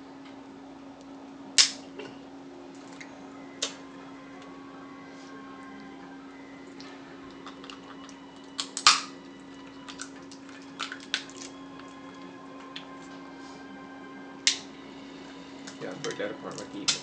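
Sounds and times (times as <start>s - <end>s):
steady low hum: 0.0s - 17.0s
crab shells cracking: 7.3s - 12.9s
wet eating clicks: 7.4s - 9.0s, 9.8s - 12.9s.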